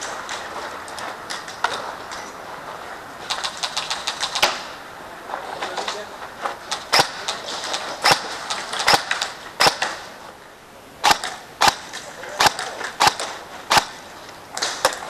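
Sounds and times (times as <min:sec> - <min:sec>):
airsoft gun shots: 0:06.9 - 0:10.1, 0:11.0 - 0:15.0.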